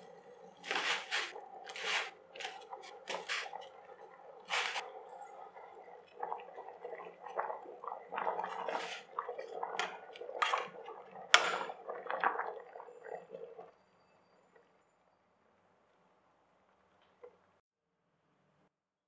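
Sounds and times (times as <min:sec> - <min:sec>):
boiling water bubbling: 0:00.0 - 0:14.6.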